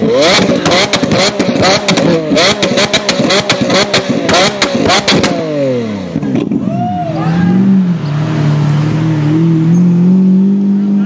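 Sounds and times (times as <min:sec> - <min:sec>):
exhaust pops and crackles: 0:00.0 - 0:06.7
car engine revving: 0:00.0 - 0:11.0.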